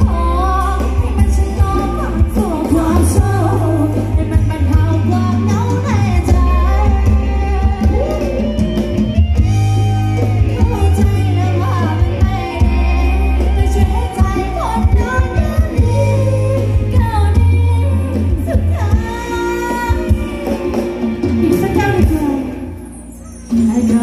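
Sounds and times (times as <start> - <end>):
person singing: 0.0 - 8.9, 10.2 - 22.7
live band dance music: 0.0 - 24.0.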